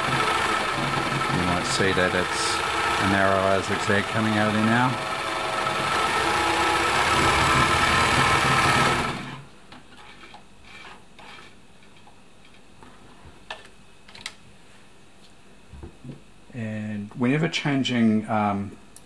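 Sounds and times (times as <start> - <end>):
sewing machine stitching: 0.0 - 9.4.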